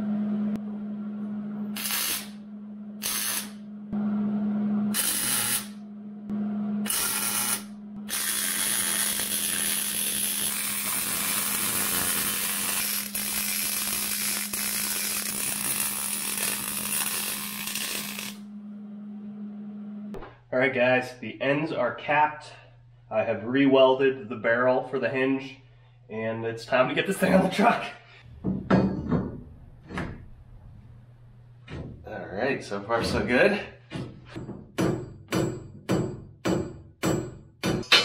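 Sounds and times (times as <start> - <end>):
low hum: 0.0 - 8.2, 13.1 - 33.7
welding arc sizzling: 1.7 - 2.4, 3.0 - 3.6, 4.9 - 5.8, 6.8 - 18.5.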